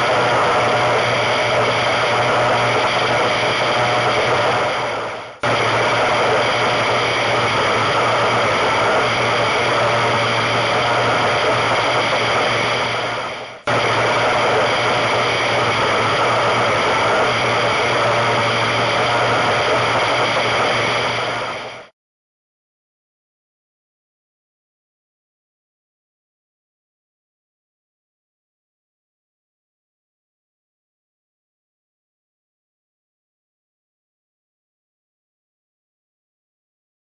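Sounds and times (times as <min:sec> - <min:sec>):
powerboat engine running: 0:00.0 - 0:21.7
steady low hum: 0:00.0 - 0:21.9.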